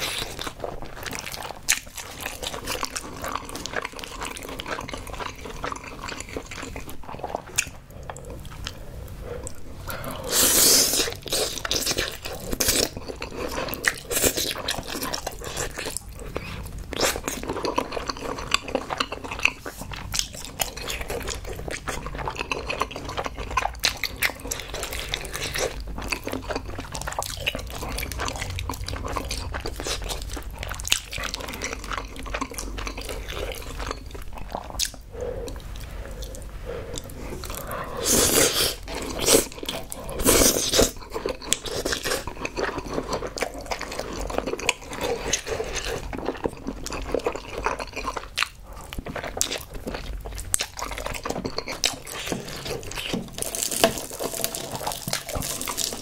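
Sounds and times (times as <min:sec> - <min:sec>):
wet chewing and biting: 0:00.0 - 0:08.8, 0:09.4 - 0:56.0
slurping noodles: 0:09.4 - 0:12.9, 0:34.7 - 0:41.0.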